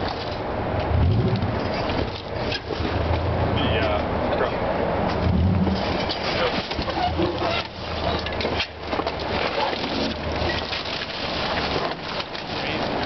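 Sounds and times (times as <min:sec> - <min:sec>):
car engine humming: 0:00.0 - 0:09.3.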